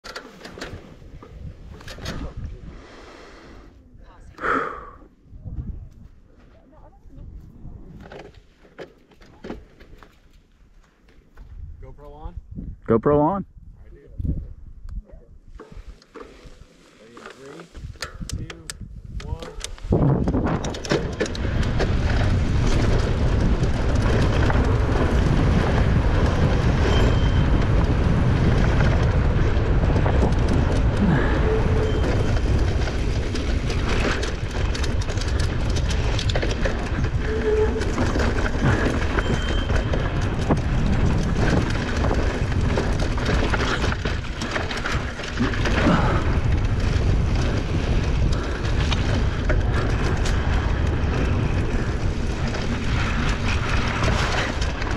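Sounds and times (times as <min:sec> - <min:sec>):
bike rattling over bumps: 0:00.0 - 0:02.7, 0:15.5 - 0:54.9
wind: 0:00.0 - 0:54.9
tyres rumbling on dirt: 0:19.9 - 0:54.9.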